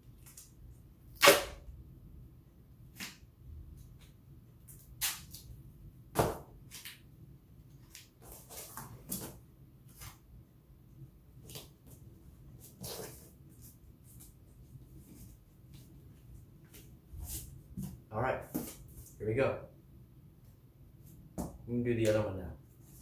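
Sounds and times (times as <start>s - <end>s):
duct tape ripping: 1.1s - 1.7s, 4.9s - 5.5s.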